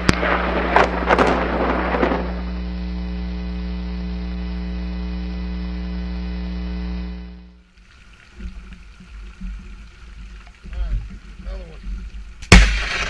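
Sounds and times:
lightning crackle: 0:00.0 - 0:06.6, 0:12.4 - 0:13.0
electrical mains hum: 0:00.0 - 0:07.7.

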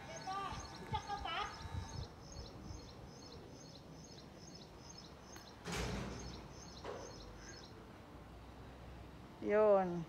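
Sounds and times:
bird chirping: 0:00.0 - 0:07.8
low outdoor hiss: 0:00.0 - 0:10.0.

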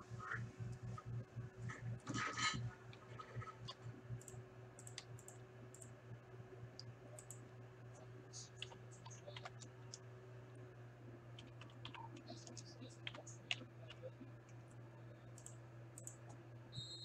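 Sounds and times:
mouse and keyboard clicks: 0:02.9 - 0:05.9.

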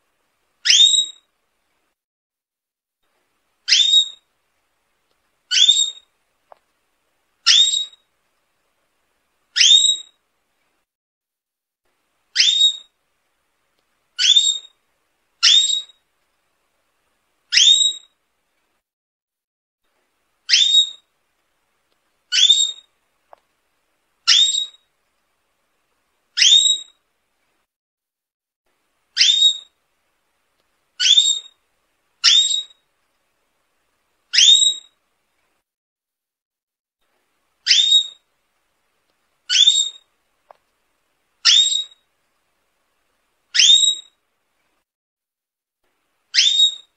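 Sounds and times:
canary whistled call: 0:00.6 - 0:01.3, 0:03.7 - 0:04.2, 0:05.5 - 0:06.0, 0:07.5 - 0:08.0, 0:09.6 - 0:10.2, 0:12.4 - 0:12.9, 0:14.2 - 0:14.7, 0:15.4 - 0:16.0, 0:17.5 - 0:18.1, 0:20.5 - 0:21.0, 0:22.3 - 0:22.9, 0:24.3 - 0:24.8, 0:26.4 - 0:27.0, 0:29.2 - 0:29.7, 0:31.0 - 0:31.6, 0:32.2 - 0:32.8, 0:34.3 - 0:35.0, 0:37.7 - 0:38.2, 0:39.5 - 0:40.0, 0:41.4 - 0:42.0, 0:43.6 - 0:44.2, 0:46.3 - 0:46.9.

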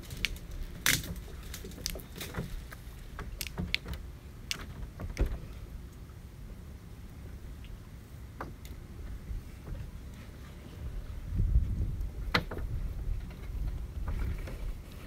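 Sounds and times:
low steady rumble: 0:00.0 - 0:15.0
wooden hull knocking and creaking: 0:04.6 - 0:05.5, 0:08.4 - 0:10.0, 0:11.6 - 0:14.8.

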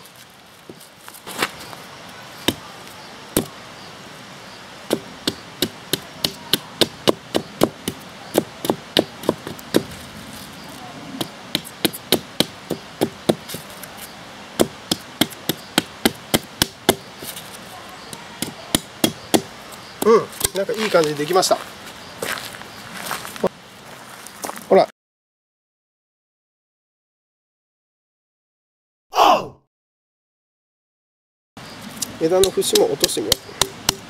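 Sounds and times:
hatchet chopping wood: 0:02.4 - 0:02.7, 0:03.4 - 0:03.6, 0:04.9 - 0:09.9, 0:11.2 - 0:13.7, 0:14.6 - 0:17.1, 0:18.1 - 0:20.8, 0:32.3 - 0:34.0.

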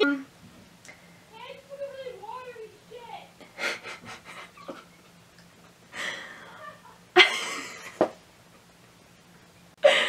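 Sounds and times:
woman's stifled breathy laughter: 0:03.6 - 0:04.9, 0:05.9 - 0:08.0, 0:09.8 - 0:10.0.

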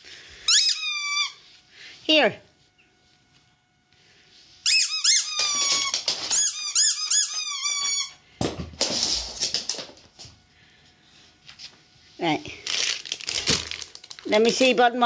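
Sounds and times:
squeaky toy squeaking: 0:04.6 - 0:08.1.

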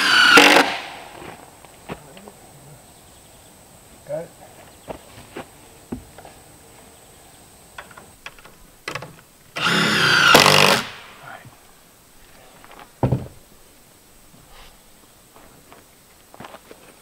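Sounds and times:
power drill driving a fastener: 0:00.0 - 0:00.9, 0:09.6 - 0:11.0
knocks of handling lumber: 0:12.7 - 0:13.4
short thump: 0:13.0 - 0:13.4.

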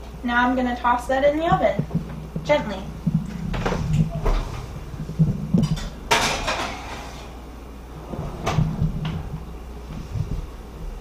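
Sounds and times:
baking dish scraping into oven: 0:05.6 - 0:09.9.

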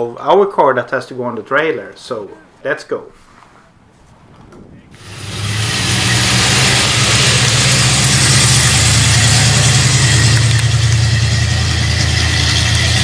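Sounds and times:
hiss: 0:05.0 - 0:13.0
truck engine driving past: 0:05.0 - 0:13.0.

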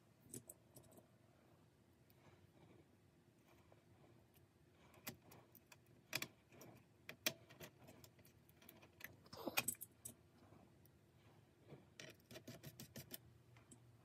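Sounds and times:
small parts clicking and knocking: 0:00.2 - 0:01.1, 0:04.3 - 0:11.0, 0:11.7 - 0:13.9.

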